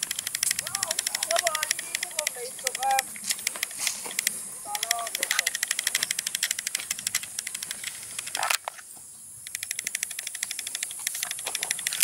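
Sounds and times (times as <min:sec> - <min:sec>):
cicadas buzzing: 0:00.0 - 0:12.0.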